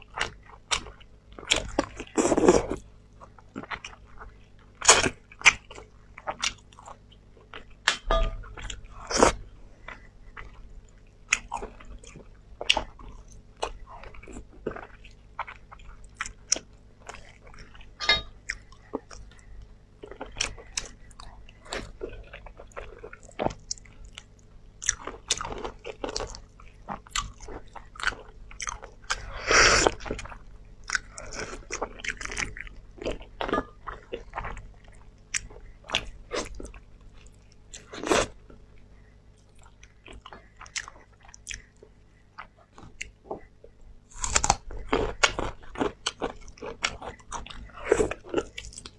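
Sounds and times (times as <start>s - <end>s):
person biting and chewing meat: 44.1s - 48.9s.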